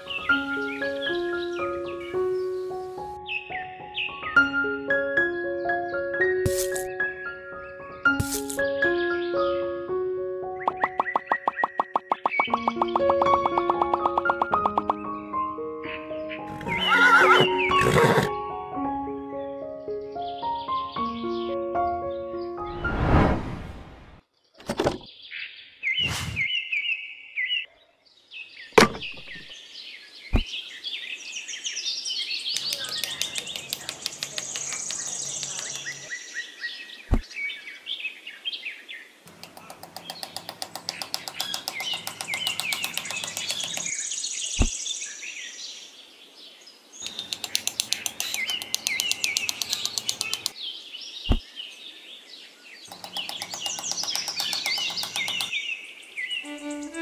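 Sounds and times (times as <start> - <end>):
birds chirping: 0.0 - 4.6, 10.5 - 18.3, 24.4 - 57.0
sharp taps: 47.0 - 50.6, 52.9 - 55.5.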